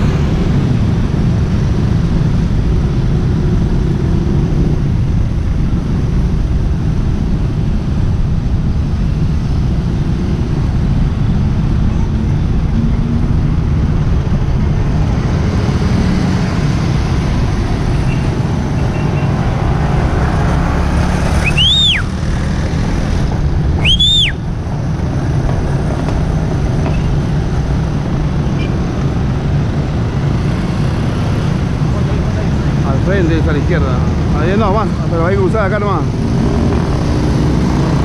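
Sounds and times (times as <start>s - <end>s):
road rumble: 0.0s - 38.0s
short high whistles: 21.4s - 22.1s, 23.8s - 24.4s.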